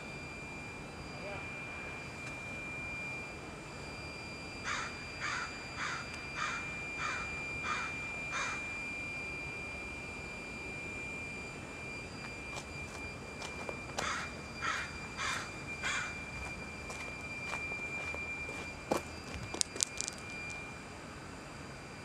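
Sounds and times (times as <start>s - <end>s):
faint high steady tone: 0.0s - 22.0s
outdoor background noise: 0.0s - 22.0s
crow cawing: 4.6s - 8.6s, 14.0s - 16.2s.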